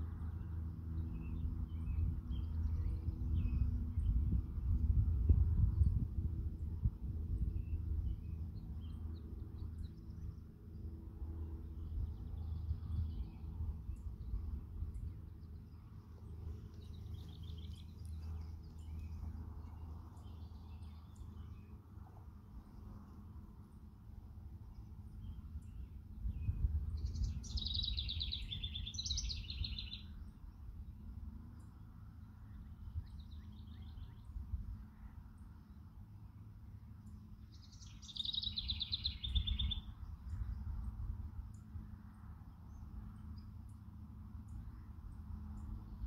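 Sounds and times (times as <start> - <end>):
steady low rumble: 0.0 - 46.0
small birds chirping: 7.4 - 21.8, 24.6 - 31.0, 31.6 - 41.7
songbird trilling: 27.0 - 30.2, 37.5 - 40.0.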